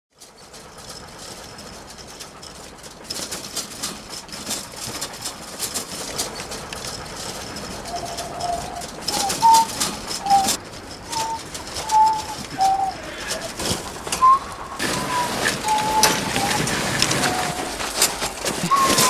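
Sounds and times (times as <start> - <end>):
metal shopping cart rattling: 0.1 - 19.0
short high squeals: 7.8 - 19.0.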